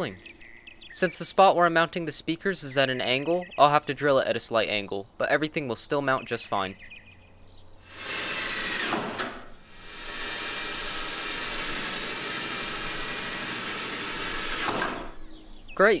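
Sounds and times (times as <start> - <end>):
power drill drilling: 7.9 - 15.2.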